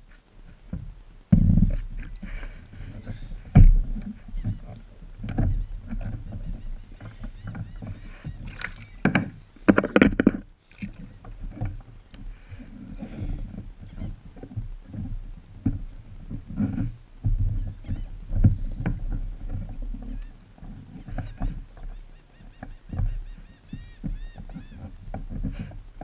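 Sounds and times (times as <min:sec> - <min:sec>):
knocks and thumps on wood: 0:00.7 - 0:04.6, 0:07.8 - 0:10.4.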